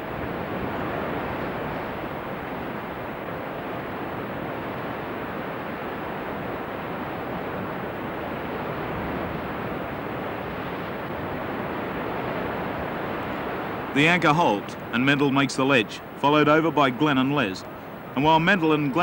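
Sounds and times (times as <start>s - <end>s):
sea surf: 0.0s - 19.0s
wind: 0.0s - 19.0s.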